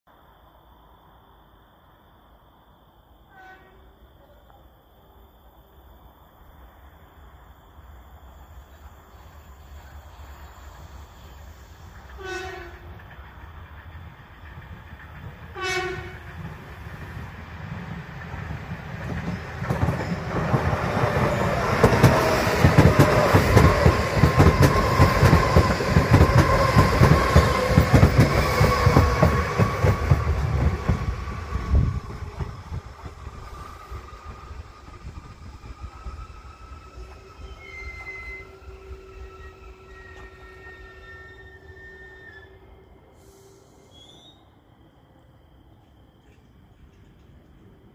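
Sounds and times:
train whine: 0:00.3 - 0:47.9
train horn blasts: 0:03.3 - 0:04.0, 0:12.2 - 0:13.0, 0:15.5 - 0:16.3, 0:37.4 - 0:44.2
train wheel clatter: 0:11.9 - 0:38.4.

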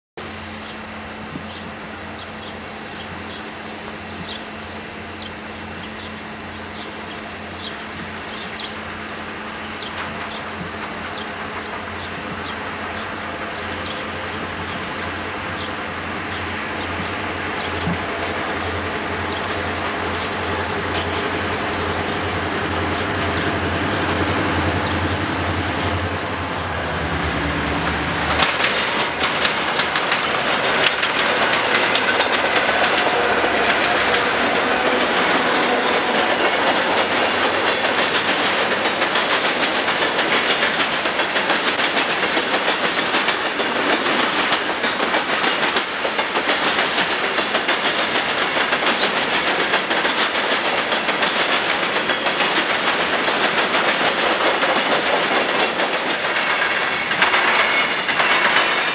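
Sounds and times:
freight train wheels rumbling: 0:00.2 - 0:58.9
locomotive engines droning: 0:00.2 - 0:58.9
wheels clacking over crossing: 0:27.0 - 0:58.9.

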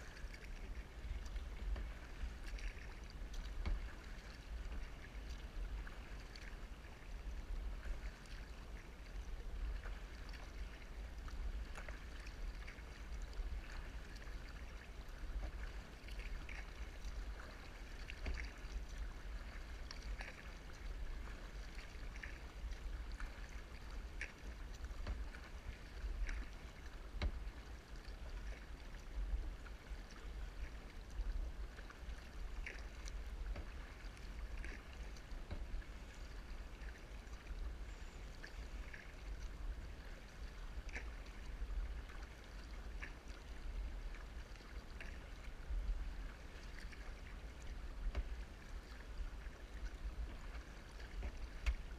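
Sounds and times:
paddle strokes in water: 0:00.0 - 0:51.9.

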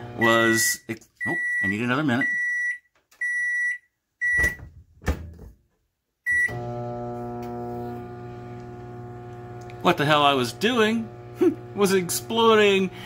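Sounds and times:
microwave keypad beeping: 0:00.2 - 0:04.6, 0:06.3 - 0:06.6
microwave oven humming: 0:06.5 - 0:13.0.

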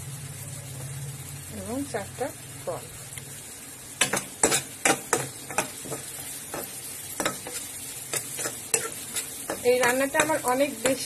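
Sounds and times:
oil sizzling: 0:00.0 - 0:11.0
metal spoon scraping metal pan: 0:04.0 - 0:11.0.

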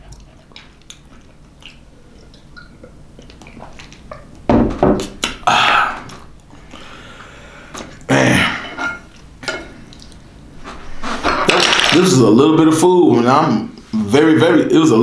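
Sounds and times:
man exhaling loudly: 0:05.4 - 0:06.1.

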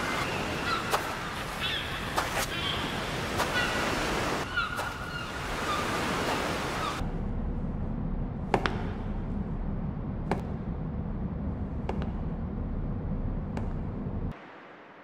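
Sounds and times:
ocean surf on a beach: 0:00.0 - 0:07.0
muffled low rumble: 0:07.0 - 0:14.4.

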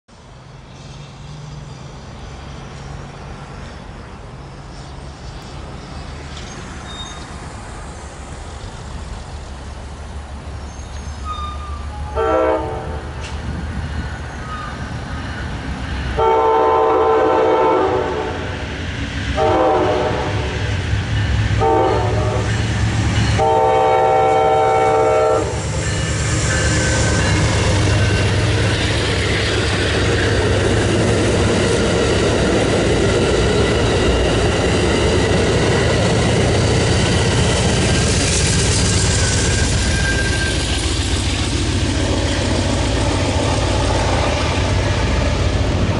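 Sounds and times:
train rumbling on rails: 0:00.1 - 0:45.9
locomotive horn blasts: 0:11.2 - 0:13.2, 0:16.2 - 0:18.5, 0:19.4 - 0:20.6, 0:21.6 - 0:22.6, 0:23.3 - 0:25.6.

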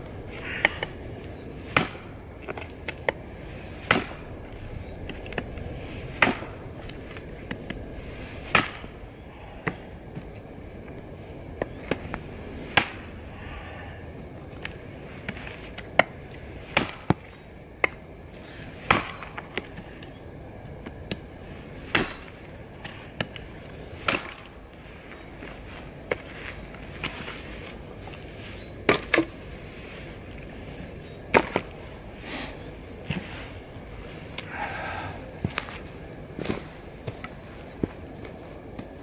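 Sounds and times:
knife chopping wooden branch: 0:01.7 - 0:02.1, 0:03.8 - 0:04.2, 0:06.2 - 0:06.6, 0:08.4 - 0:08.9, 0:12.7 - 0:13.0.

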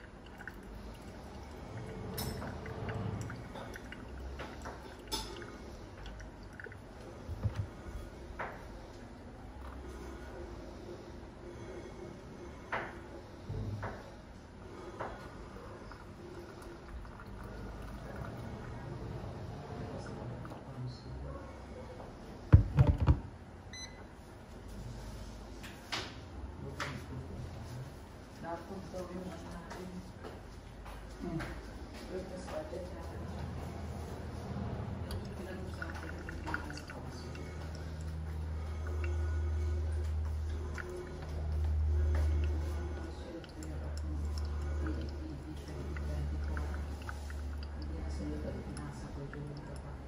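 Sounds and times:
coffee dripping into glass: 0:00.0 - 0:07.6, 0:15.1 - 0:18.8, 0:35.1 - 0:50.0
short beep: 0:23.7 - 0:24.0.

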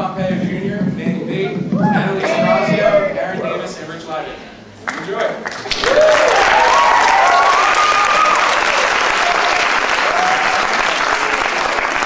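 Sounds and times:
voices cheering: 0:01.4 - 0:03.6, 0:05.7 - 0:12.0
audience applauding: 0:04.9 - 0:12.0.

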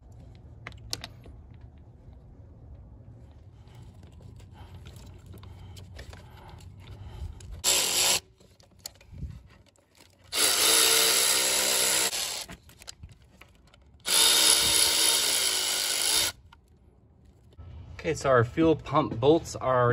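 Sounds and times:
soft clicks of parts handled: 0:00.0 - 0:07.6
cordless electric ratchet: 0:07.6 - 0:08.3, 0:10.3 - 0:12.9, 0:14.0 - 0:16.5.

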